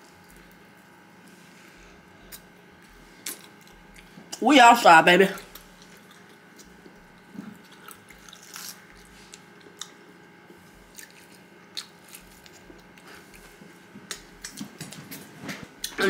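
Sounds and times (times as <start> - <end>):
person chewing food: 2.2 - 4.2, 5.4 - 15.2.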